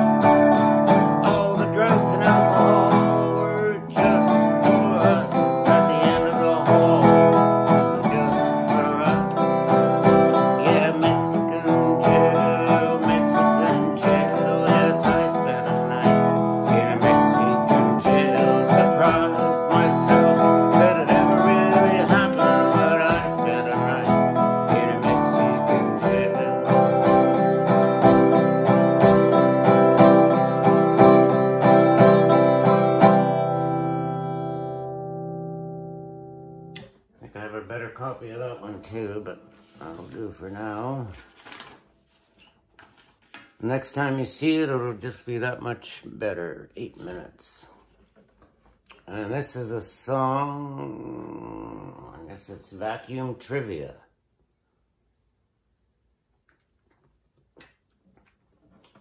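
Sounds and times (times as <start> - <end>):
acoustic guitar strumming: 0.0 - 36.9, 37.7 - 42.5
man singing: 0.9 - 34.6, 37.2 - 41.2, 48.9 - 53.8.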